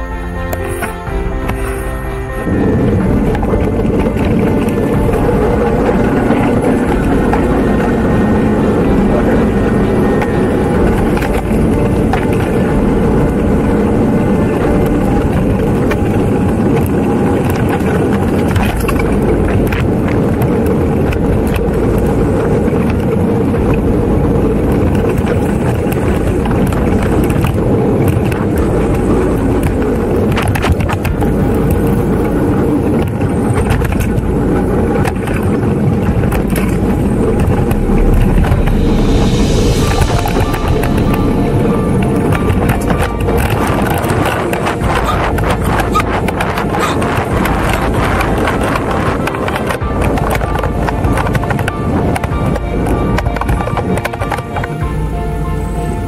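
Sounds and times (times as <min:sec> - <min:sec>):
bicycle tyres on gravel: 0:00.0 - 0:56.0
wind buffeting microphone: 0:00.0 - 0:56.0
bike clicks and rattles: 0:15.3 - 0:23.8, 0:24.7 - 0:34.2, 0:34.9 - 0:37.9.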